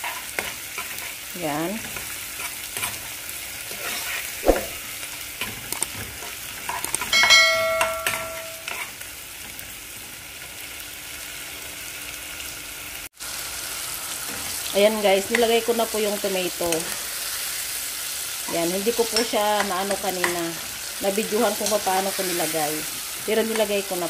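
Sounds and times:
onions sizzling in hot oil: 0:00.0 - 0:24.0
spoon knocking: 0:07.2 - 0:08.7.

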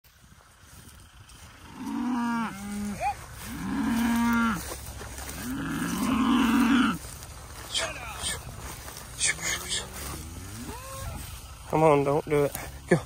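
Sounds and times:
cattle mooing: 0:01.3 - 0:08.5, 0:09.1 - 0:11.4.

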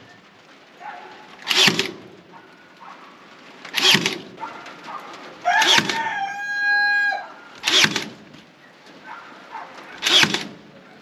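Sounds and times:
fastening gun firing: 0:01.4 - 0:02.1, 0:03.7 - 0:04.4, 0:05.6 - 0:06.2, 0:07.6 - 0:08.3, 0:10.0 - 0:10.6
rooster crowing: 0:05.4 - 0:07.5.

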